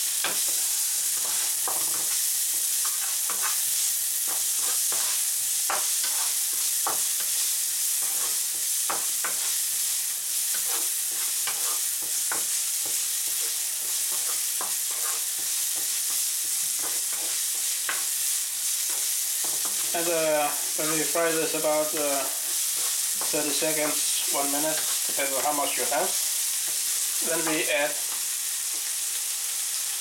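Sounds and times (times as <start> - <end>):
vegetables sizzling in oil: 0.0 - 30.0
wooden spatula scraping pan: 6.0 - 6.4, 10.6 - 11.8, 13.4 - 15.9.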